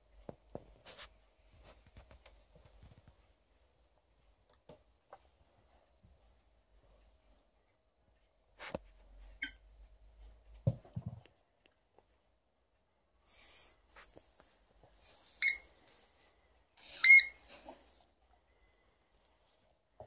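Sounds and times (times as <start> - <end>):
squeaky dog toy squeaks: 9.4 - 9.6, 15.2 - 15.7, 16.8 - 17.7
soft breathing: 13.2 - 16.7, 17.6 - 19.7.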